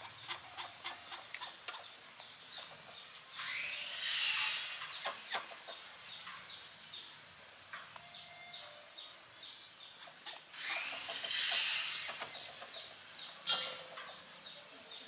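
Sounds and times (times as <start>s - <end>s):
chickens clucking: 0.0s - 3.3s, 4.7s - 6.6s, 9.9s - 15.0s.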